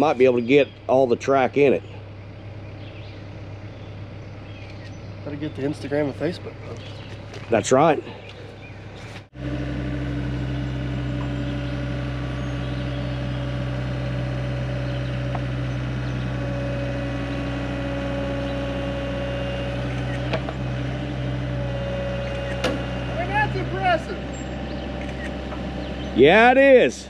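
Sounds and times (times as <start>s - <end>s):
excavator diesel engine running: 0.0s - 27.0s.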